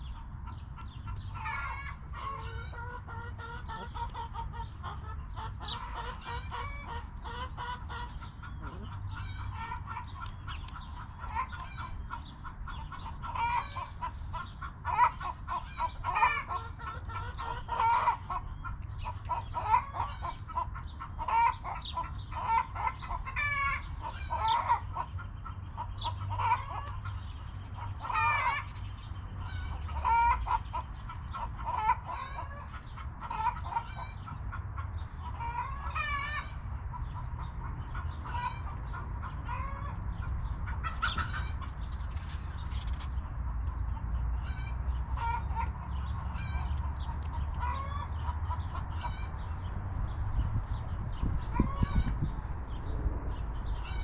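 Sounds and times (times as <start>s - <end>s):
hens clucking: 0.0s - 54.0s.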